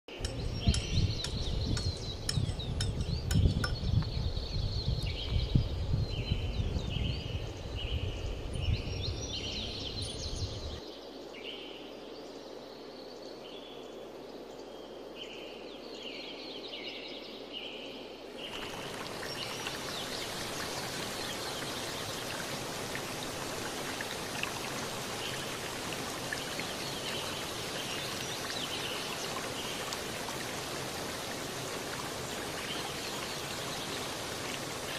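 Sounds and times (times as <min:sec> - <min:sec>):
wind rumbling on microphone: 0:00.1 - 0:10.8
steady even hiss: 0:07.4 - 0:34.9.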